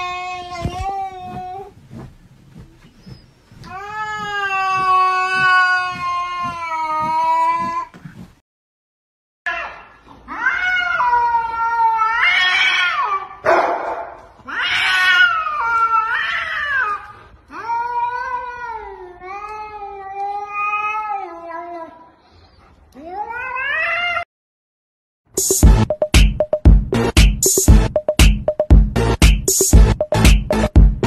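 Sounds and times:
cats yowling: 0:03.7 - 0:07.7, 0:09.5 - 0:13.4, 0:14.4 - 0:21.8, 0:23.0 - 0:24.3.

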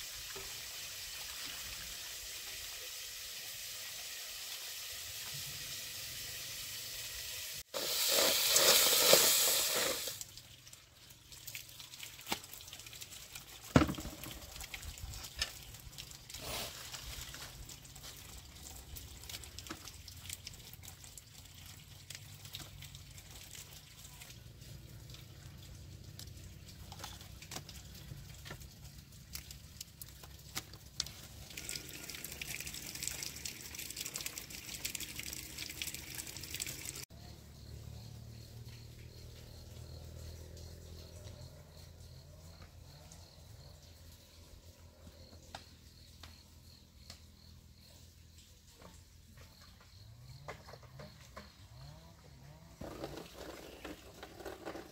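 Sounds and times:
water pouring: 0:00.0 - 0:37.1, 0:52.8 - 0:54.9
leaves rustling in plastic basin: 0:16.4 - 0:18.5.

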